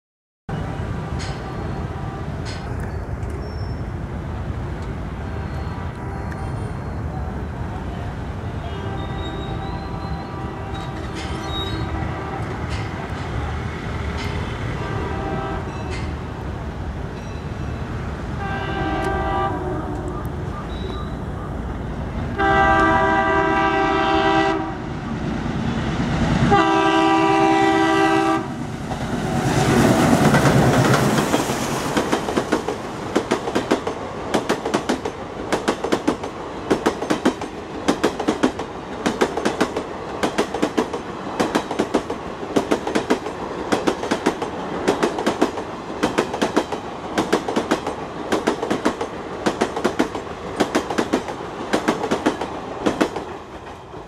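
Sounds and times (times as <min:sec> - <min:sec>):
locomotive horn blasts: 0:00.5 - 0:02.4, 0:05.2 - 0:06.7, 0:08.5 - 0:12.7, 0:14.6 - 0:15.9, 0:18.4 - 0:21.2, 0:22.4 - 0:24.9, 0:26.5 - 0:28.6
train wheels clicking over rail joints: 0:01.1 - 0:01.5, 0:02.4 - 0:03.5, 0:10.7 - 0:14.6, 0:15.7 - 0:16.4, 0:28.9 - 0:54.0
locomotive engine passing: 0:01.8 - 0:34.4.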